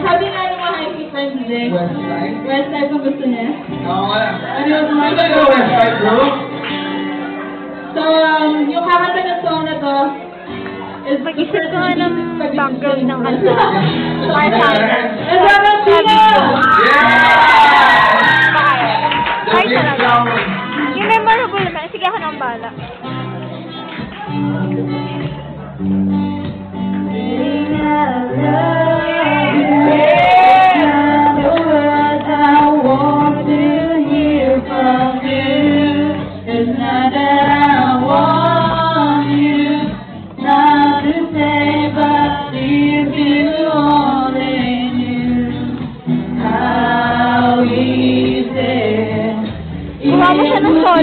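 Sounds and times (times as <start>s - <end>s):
acoustic guitar: 0.0s - 51.0s
group singing: 13.4s - 19.6s, 27.1s - 51.0s.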